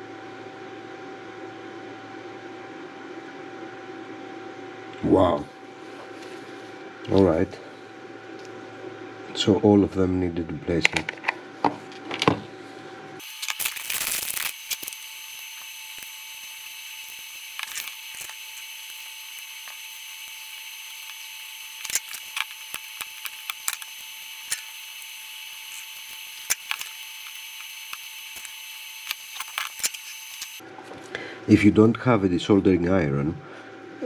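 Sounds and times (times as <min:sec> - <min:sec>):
steady hum: 0:00.0 - 0:34.0
desoldering iron tapping circuit board: 0:13.2 - 0:30.6.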